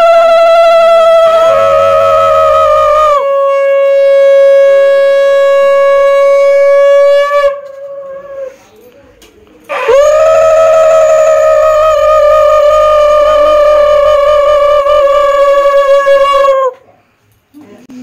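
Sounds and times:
conch shell blast: 0:00.0 - 0:08.7
lower-pitched conch blast: 0:00.0 - 0:08.7, 0:09.7 - 0:16.7.

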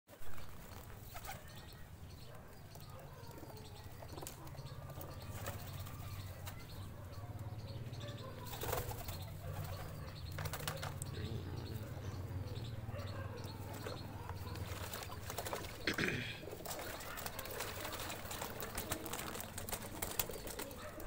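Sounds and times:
pigeons splashing and flapping: 0:00.2 - 0:01.6, 0:03.4 - 0:07.4, 0:08.4 - 0:11.8, 0:13.4 - 0:21.0.

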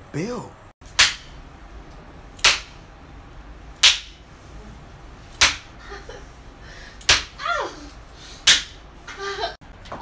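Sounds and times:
person crying out: 0:07.4 - 0:07.9.

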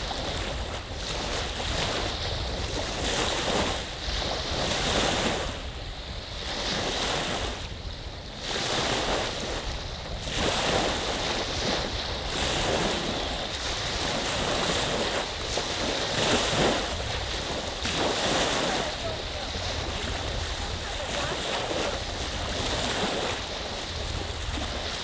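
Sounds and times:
waves washing onto beach: 0:00.0 - 0:25.0
wind rumble on microphone: 0:00.0 - 0:25.0.

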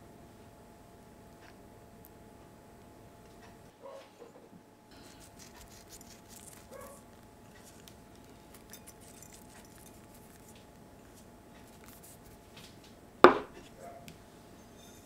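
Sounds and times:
brief squeak: 0:14.6 - 0:15.0.

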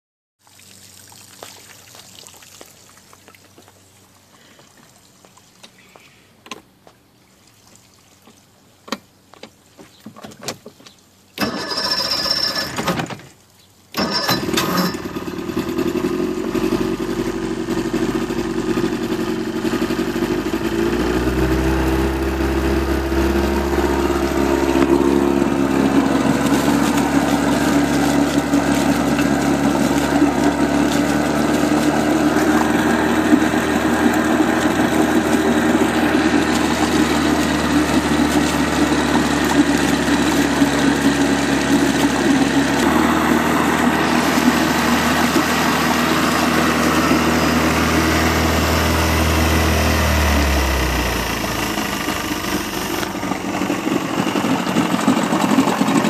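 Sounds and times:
outboard motor idling: 0:11.4 - 0:12.8, 0:13.9 - 0:56.0
starter motor cranking: 0:11.4 - 0:13.1, 0:14.0 - 0:18.3, 0:19.0 - 0:56.0.

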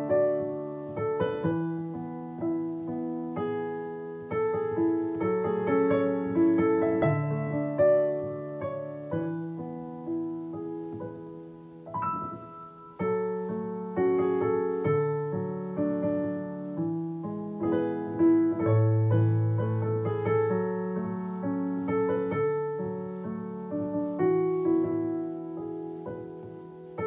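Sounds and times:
gentle piano melody: 0:00.0 - 0:27.0.

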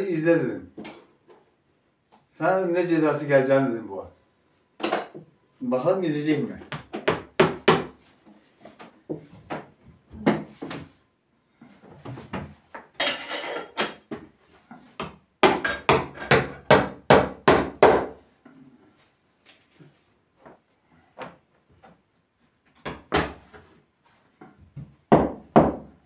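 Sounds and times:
hammer knocking on wood: 0:06.7 - 0:08.0, 0:24.8 - 0:25.9.

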